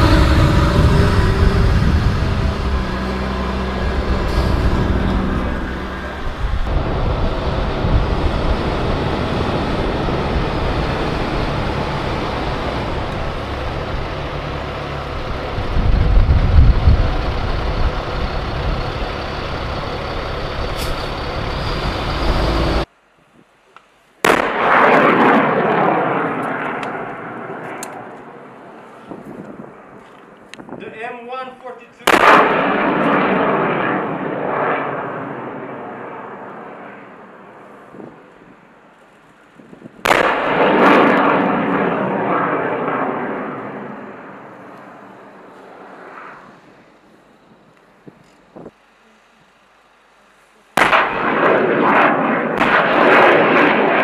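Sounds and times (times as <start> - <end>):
rocket launching: 0.0 - 17.8, 24.2 - 28.4, 32.0 - 38.3, 39.7 - 47.0, 50.8 - 54.0
armoured vehicles driving past: 0.0 - 22.9.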